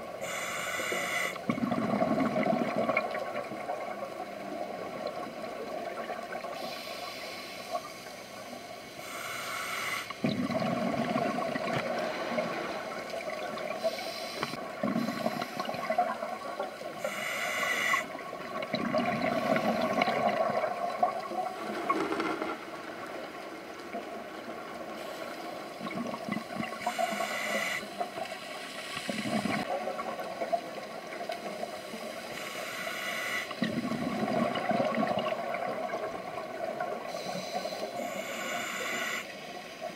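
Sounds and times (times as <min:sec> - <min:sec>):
hissing regulator inhalations: 0:00.2 - 0:01.5, 0:06.6 - 0:10.3, 0:13.6 - 0:16.0, 0:16.9 - 0:18.2, 0:26.8 - 0:29.7, 0:31.4 - 0:33.9, 0:37.0 - 0:39.4
bubbling exhaled air: 0:01.0 - 0:04.0, 0:10.1 - 0:22.0, 0:29.0 - 0:30.2, 0:33.5 - 0:39.3.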